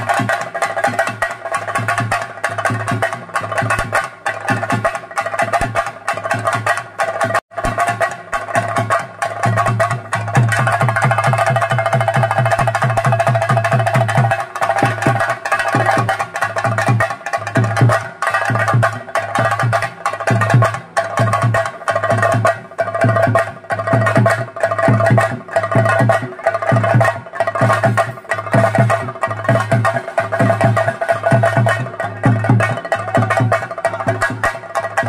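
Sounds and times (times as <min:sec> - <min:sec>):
drums playing: 0:00.0 - 0:35.0
sharp stick strikes: 0:07.6 - 0:08.6.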